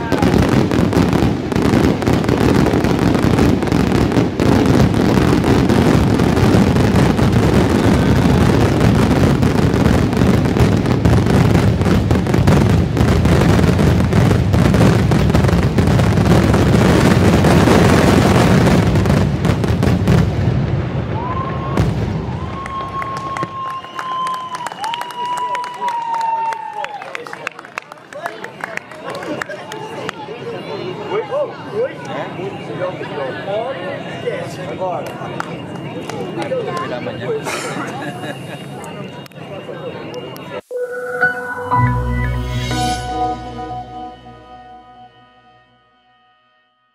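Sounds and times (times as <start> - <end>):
fireworks booming and crackling: 0.0 - 23.6
high whistle: 22.5 - 25.4, 38.5 - 46.9.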